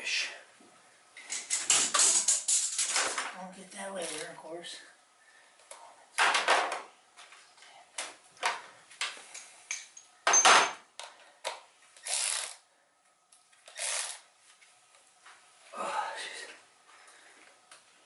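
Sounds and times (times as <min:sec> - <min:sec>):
tools and metal parts clanking: 0:01.2 - 0:03.3, 0:09.4 - 0:10.8.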